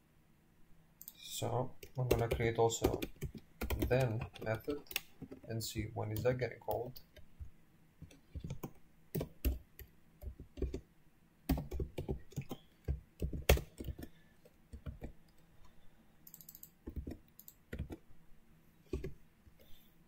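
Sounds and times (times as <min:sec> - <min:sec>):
typing on computer keyboard: 0:01.8 - 0:05.5, 0:08.0 - 0:10.8, 0:11.5 - 0:15.2, 0:16.2 - 0:18.0.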